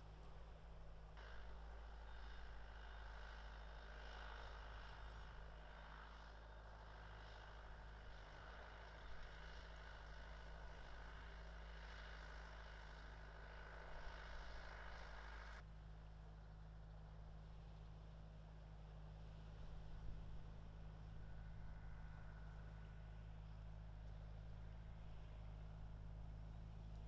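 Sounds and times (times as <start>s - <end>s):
low hum: 0.0s - 27.0s.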